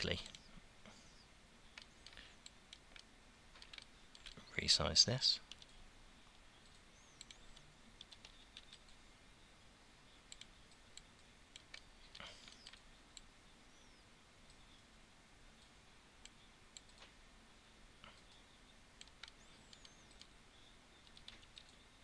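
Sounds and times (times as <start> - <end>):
keyboard keys clicking: 1.7 - 4.4, 6.7 - 9.0, 21.0 - 21.8
computer mouse clicks: 1.7 - 4.5, 5.4 - 9.0, 10.2 - 13.3, 15.6 - 17.2, 18.1 - 20.4, 21.0 - 21.8.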